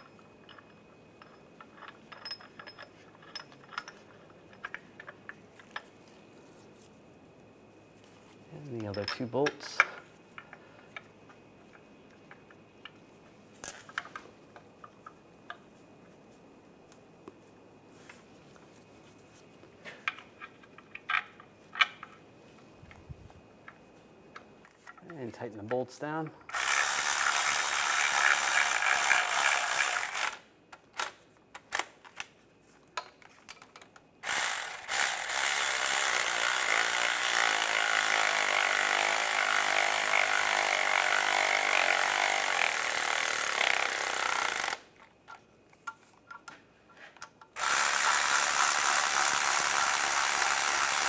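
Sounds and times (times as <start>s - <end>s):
electric ratchet driving bolts: 26.5s - 30.4s, 34.2s - 44.9s, 47.6s - 51.0s.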